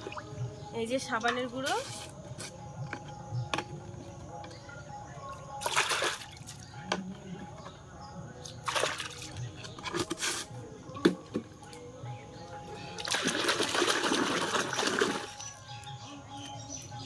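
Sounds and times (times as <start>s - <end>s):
liquid pouring into metal basin: 13.0s - 15.4s.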